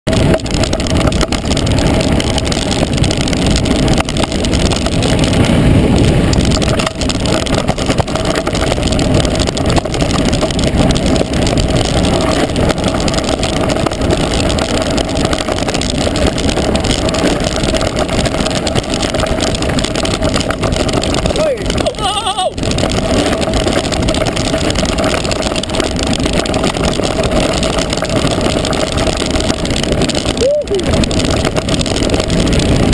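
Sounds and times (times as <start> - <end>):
bike tyres rattling over stones: 0.0 - 32.9
wind rushing on microphone: 0.0 - 32.9.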